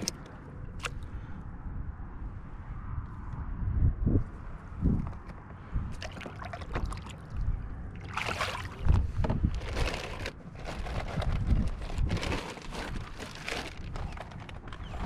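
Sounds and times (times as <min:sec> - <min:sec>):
water sloshing and splashing: 0:05.9 - 0:11.3, 0:11.9 - 0:15.0.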